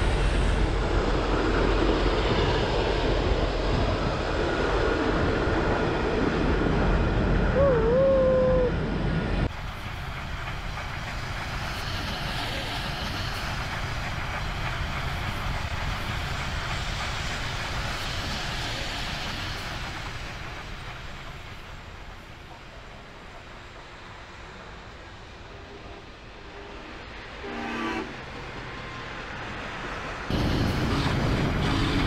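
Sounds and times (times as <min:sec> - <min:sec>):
train wheels clattering on rails: 0:09.4 - 0:25.7, 0:28.1 - 0:32.0.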